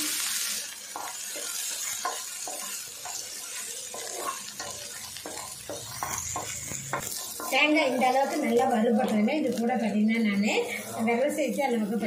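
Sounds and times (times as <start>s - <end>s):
food sizzling in oil: 0.0s - 12.0s
wooden spatula scraping pan: 1.0s - 8.6s.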